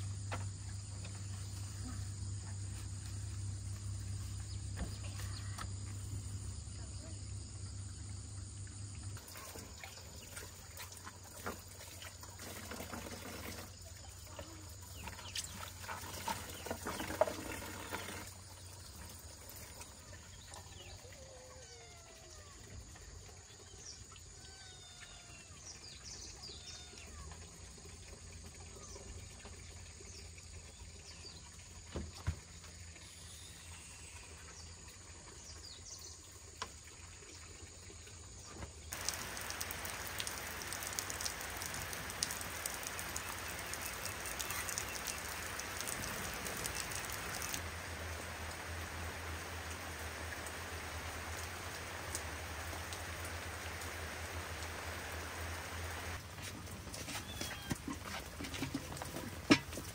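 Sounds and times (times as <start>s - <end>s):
birds chirping faintly: 38.5s - 59.4s
heavy rain: 38.9s - 56.2s.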